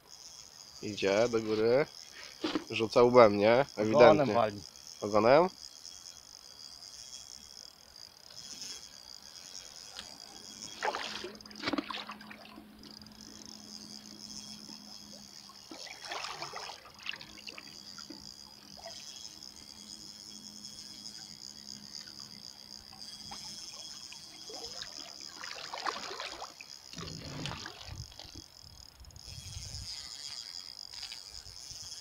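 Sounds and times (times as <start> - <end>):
water swishing and splashing: 10.7 - 12.6, 15.6 - 18.2, 24.4 - 28.4.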